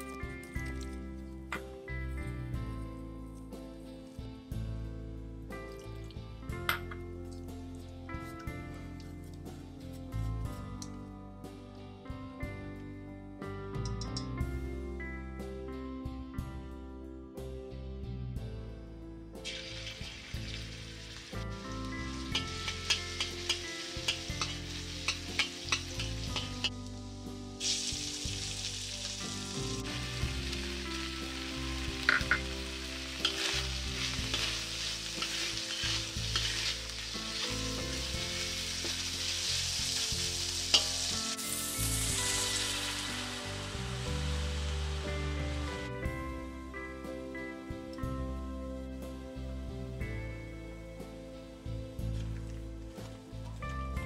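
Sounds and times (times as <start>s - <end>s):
meat sizzling in hot oil: 19.4s - 45.9s
water poured into hot wok: 19.4s - 45.9s
metal spatula scraping wok: 22.3s - 26.8s, 31.8s - 43.6s.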